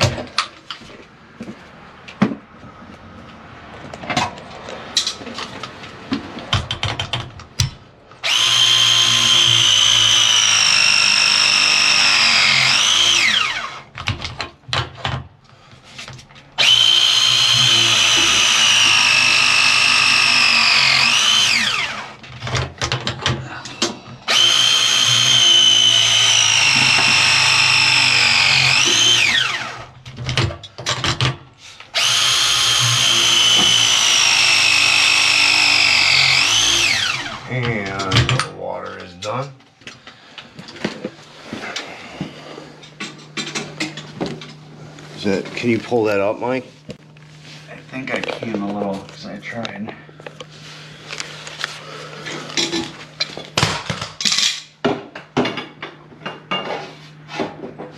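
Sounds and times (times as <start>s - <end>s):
power tool whining: 8.2s - 14.0s, 16.6s - 22.3s, 23.7s - 30.0s, 31.9s - 38.0s.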